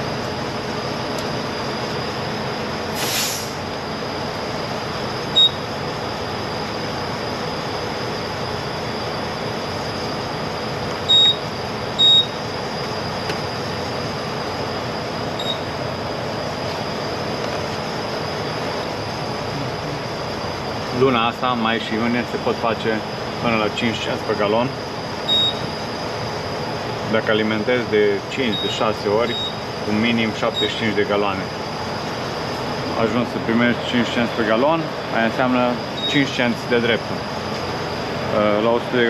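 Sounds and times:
truck engine drone: 0.0s - 39.0s
short hiss: 3.0s - 3.6s
short high electronic beeps: 5.3s - 5.7s, 11.1s - 12.4s, 15.4s - 15.7s, 25.3s - 25.7s.

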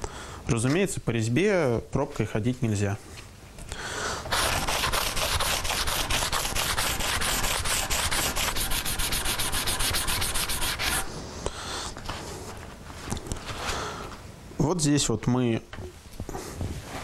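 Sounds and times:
sandpaper scrubbing on wood: 4.3s - 11.1s.

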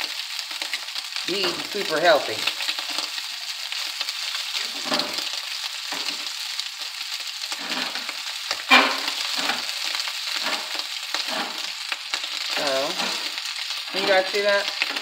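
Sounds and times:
sausage sizzling in a wok: 0.0s - 15.0s
wooden spoon stirring and scraping: 7.5s - 11.8s.

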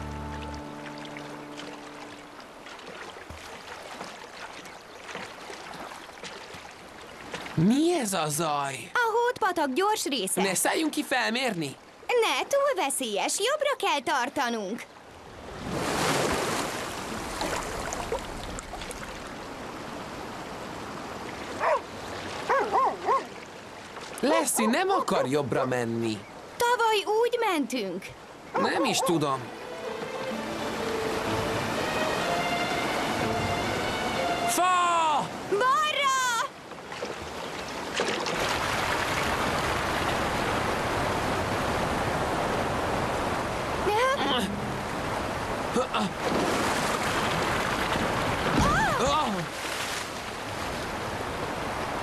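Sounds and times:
rushing creek water: 0.0s - 52.0s
faint splashes: 0.8s - 7.7s, 15.4s - 24.3s, 36.5s - 40.7s, 45.8s - 51.5s
river rapids rushing: 28.4s - 36.4s.

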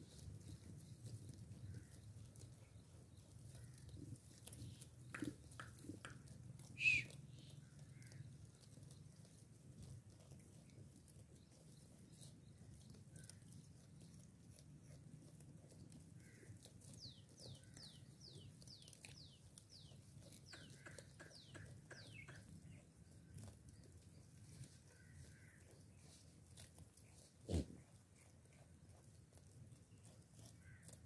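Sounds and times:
goats cropping grass: 0.0s - 31.0s
bird whistling: 6.8s - 7.2s.

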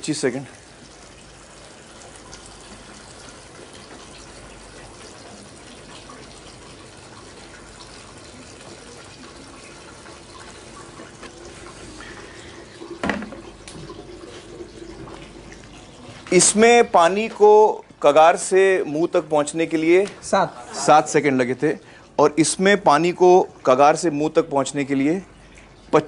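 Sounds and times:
water trickling into a bucket: 0.0s - 26.0s
brief thump: 13.0s - 13.4s.

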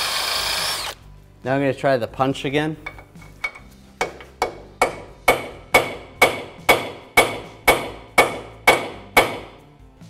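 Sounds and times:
hammer striking steel punch: 4.0s - 9.6s.

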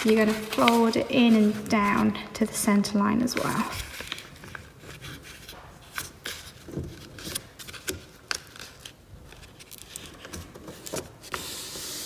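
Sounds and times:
fingers sliding along paper crease: 0.0s - 2.0s
paper rustling and crinkling: 0.0s - 2.2s, 3.2s - 12.0s.

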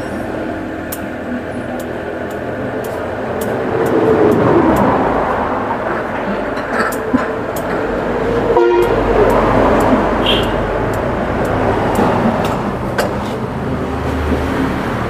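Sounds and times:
road traffic rumble: 0.0s - 15.0s
vehicle horn toot: 8.6s - 9.0s, 10.2s - 10.7s.

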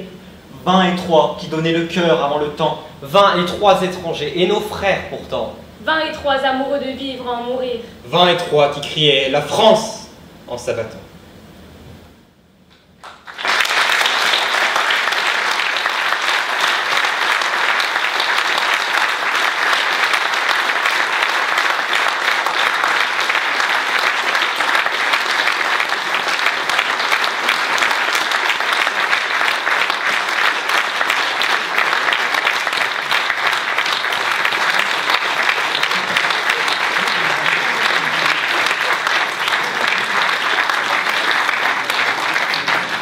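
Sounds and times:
audience applauding: 13.0s - 43.0s.

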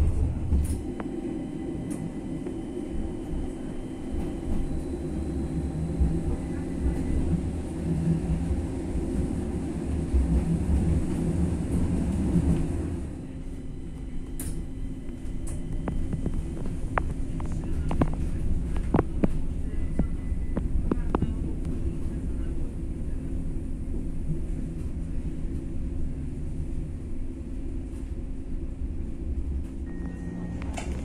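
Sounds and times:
tram rumbling with motor hum: 0.0s - 31.0s.

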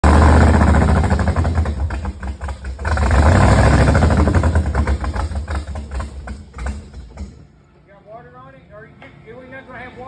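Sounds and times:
engine backfiring: 0.0s - 7.4s
loud rough engine rumble: 0.0s - 7.5s.

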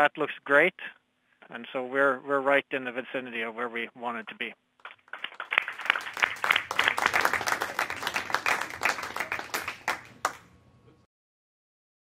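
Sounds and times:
people clapping: 4.8s - 10.5s.

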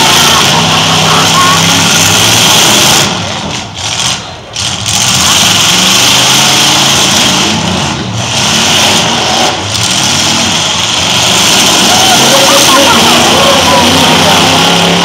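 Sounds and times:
truck engines revving: 0.0s - 15.0s.

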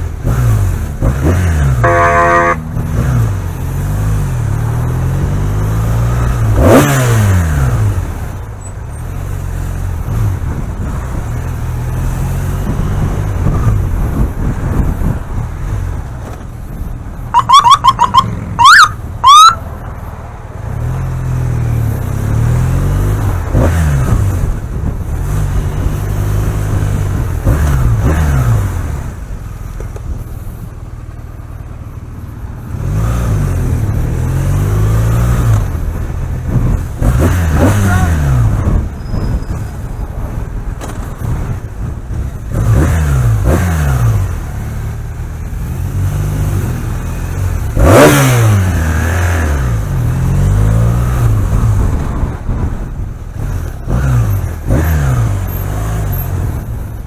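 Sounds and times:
motorcycle engine revving: 0.0s - 19.8s, 20.6s - 57.0s
siren chirps and whoops: 17.4s - 19.6s.

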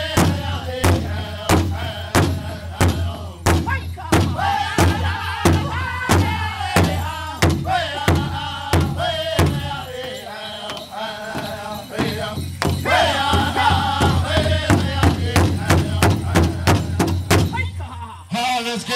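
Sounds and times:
men singing together: 0.0s - 17.5s
large drum struck in unison: 0.1s - 9.7s, 12.4s - 17.6s.

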